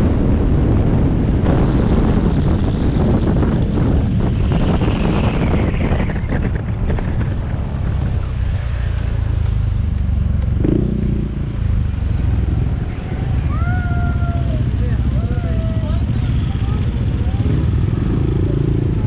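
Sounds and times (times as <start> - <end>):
wind rumble on microphone: 0.0 - 19.0
motorcycle engine running: 6.3 - 19.0.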